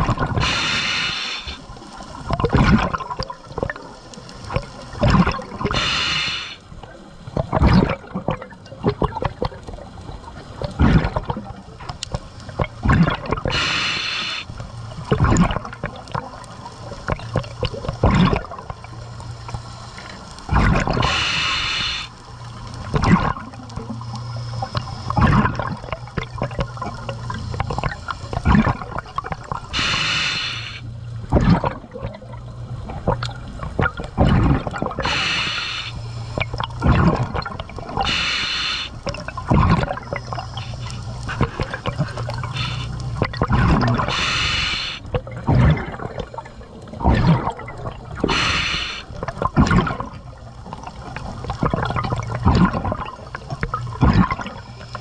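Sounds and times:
bubbling and crackling: 0.0s - 55.0s
diver breathing through regulator: 0.4s - 1.6s, 5.7s - 6.6s, 13.5s - 14.5s, 20.6s - 22.2s, 29.7s - 30.9s, 34.3s - 36.4s, 38.0s - 39.0s, 40.5s - 43.1s, 44.0s - 45.8s, 48.2s - 49.2s
low steady hum: 6.5s - 55.0s.

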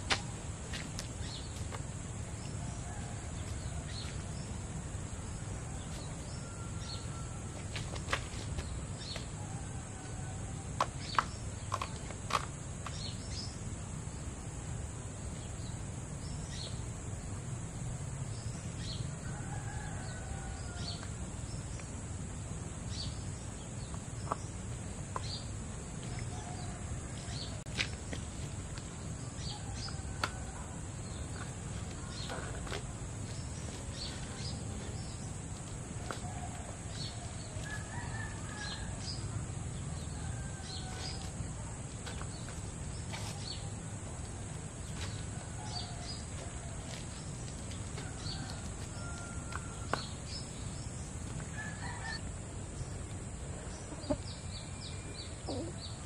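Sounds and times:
bird calls: 53.8s - 56.0s.

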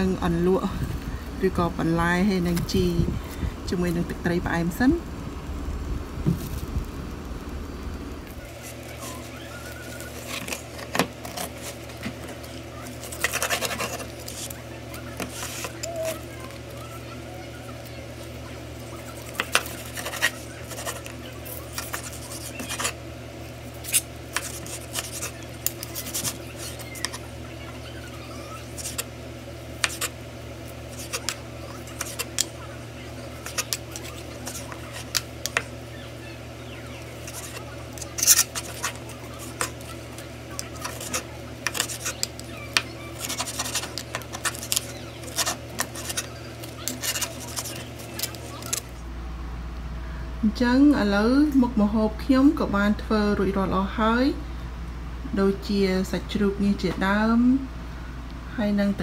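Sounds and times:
steady low hum: 0.0s - 59.0s
knife cutting crusty roast meat: 19.1s - 23.0s, 29.8s - 30.2s, 30.9s - 32.6s, 37.2s - 48.8s.

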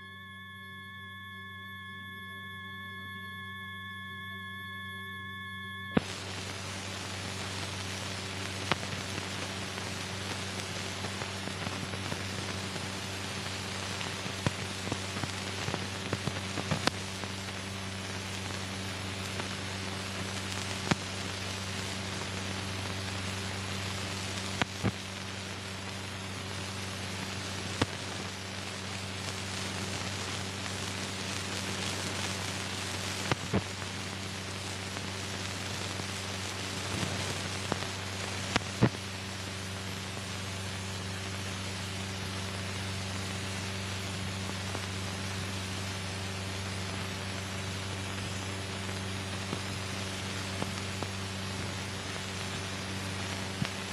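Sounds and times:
low hum: 0.0s - 13.5s
film soundtrack hiss: 5.9s - 53.9s.

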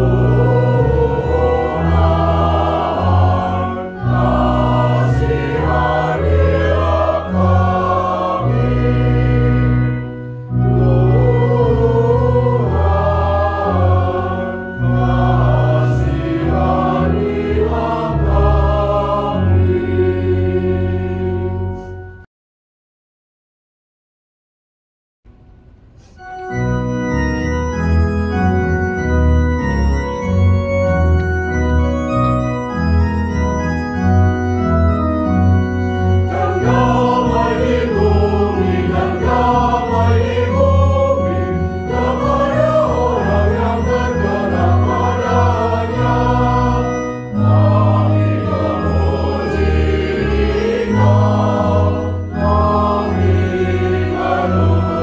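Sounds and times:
choir singing a hymn: 0.0s - 22.0s, 34.7s - 55.0s
organ playing chords: 0.0s - 22.3s, 25.4s - 55.0s.

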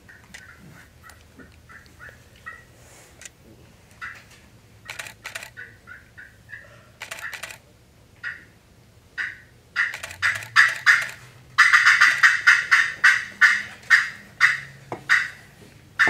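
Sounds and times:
turkey call clucks: 0.0s - 2.7s, 4.0s - 4.3s, 5.5s - 7.4s, 8.2s - 8.6s, 9.2s - 15.5s.

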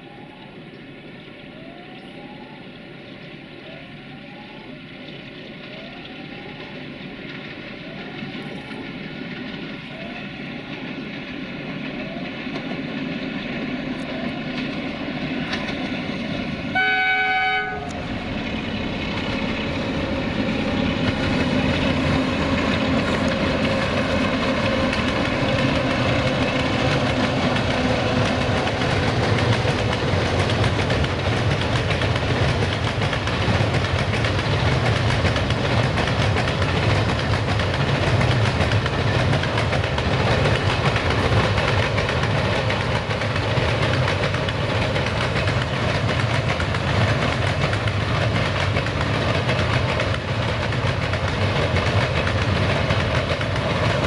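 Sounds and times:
diesel locomotive drone: 0.0s - 54.0s
wagons rumbling on track: 0.0s - 54.0s
train horn blast: 16.7s - 18.2s.

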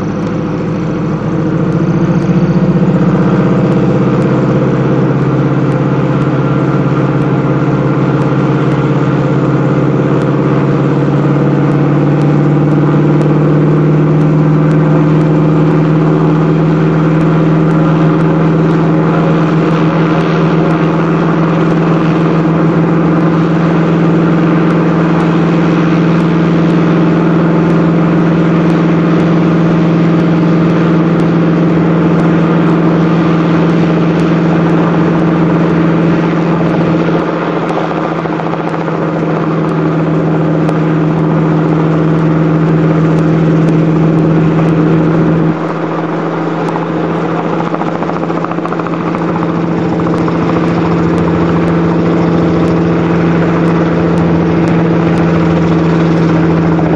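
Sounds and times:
helicopter drone overhead: 0.0s - 56.9s.

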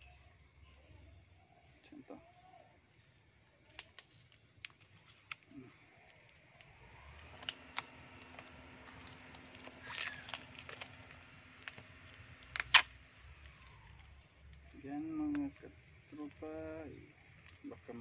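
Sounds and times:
faint steady hum: 0.0s - 18.0s
packing tape crinkling and tearing: 2.2s - 15.5s.

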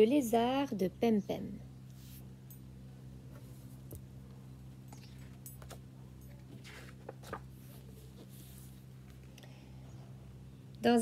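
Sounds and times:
faint low hum: 0.0s - 11.0s
book pages rustling: 4.9s - 9.3s.

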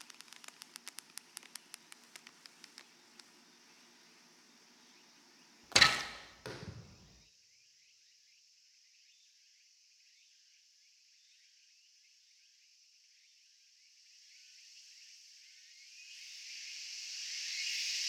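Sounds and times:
arrow striking target: 5.7s - 7.2s
bowstring crack: 5.7s - 7.2s.

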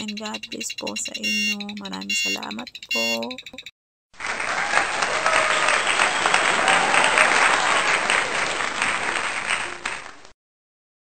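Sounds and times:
crowd applause: 4.2s - 10.3s.

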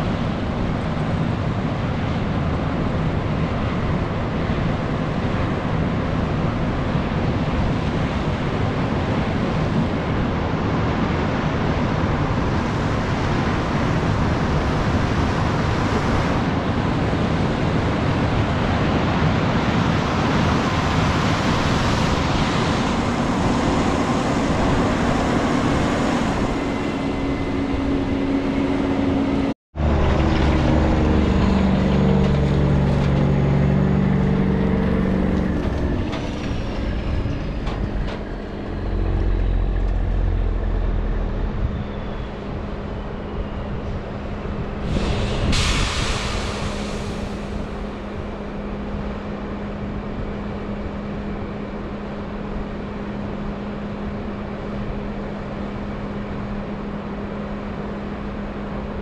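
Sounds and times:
engine drone with hum tones: 0.0s - 59.0s
machine noise: 21.0s - 44.3s.

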